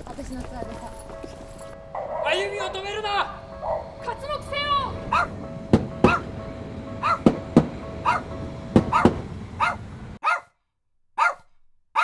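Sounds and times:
dog barking: 0:02.0 - 0:02.4, 0:03.6 - 0:04.0, 0:05.1 - 0:05.4, 0:06.0 - 0:06.3, 0:07.0 - 0:07.3, 0:08.0 - 0:10.6, 0:11.2 - 0:12.0
sharp knocks: 0:05.2 - 0:09.5.

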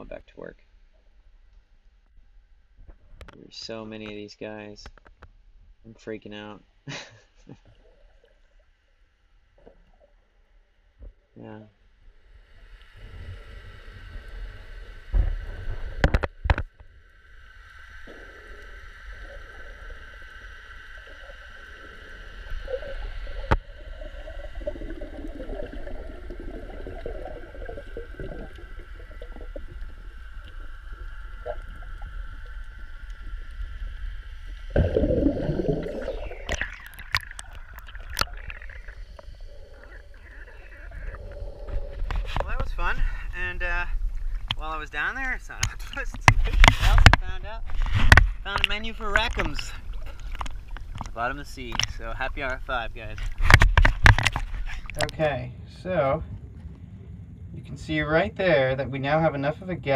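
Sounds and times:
muffled underwater water movement: 0:07.4 - 0:59.9
rush of water: 0:34.7 - 0:55.3
low rumble: 0:55.0 - 0:59.9.

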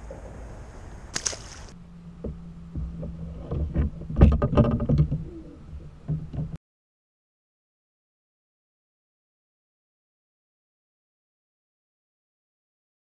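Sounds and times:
steady low hum: 0:00.0 - 0:06.6
gear knocking on plastic kayak: 0:02.2 - 0:06.6.

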